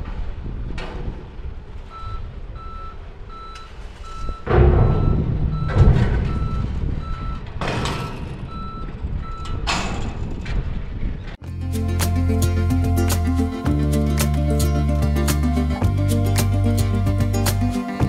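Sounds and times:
electronic warning beeper: 0:02.0 - 0:07.4
loud rumbling clanks: 0:04.3 - 0:11.4.

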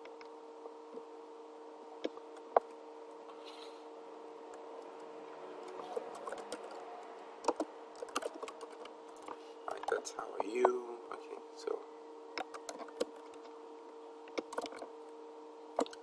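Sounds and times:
keyboard typing: 0:04.5 - 0:10.8, 0:12.4 - 0:13.5, 0:14.3 - 0:14.8.

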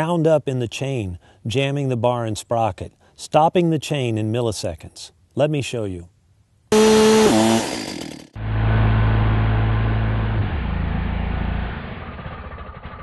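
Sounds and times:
chainsaw cutting at full throttle: 0:06.7 - 0:08.4
slowed deep drone of chainsaw: 0:06.7 - 0:13.0.

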